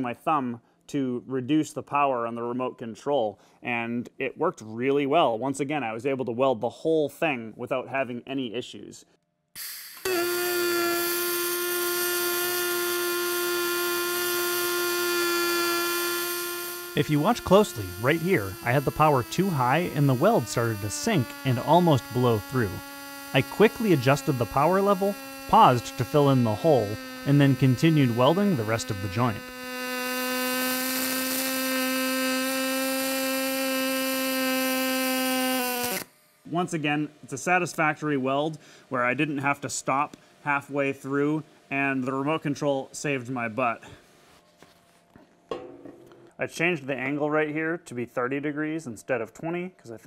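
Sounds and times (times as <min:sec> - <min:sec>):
welding arc buzzing: 0:09.6 - 0:36.9.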